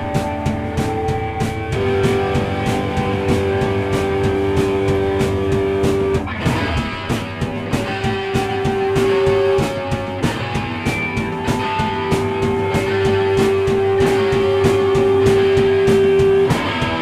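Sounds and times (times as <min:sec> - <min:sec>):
long held guitar note: 0:00.0 - 0:10.7
drum hits: 0:00.0 - 0:17.0
rock band playing: 0:00.0 - 0:17.0.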